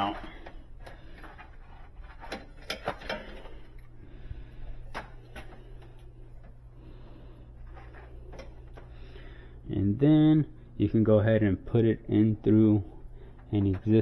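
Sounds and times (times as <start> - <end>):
cable rubbing and rustling: 0.0 - 3.9, 7.5 - 8.9
steady low hum: 0.0 - 14.0.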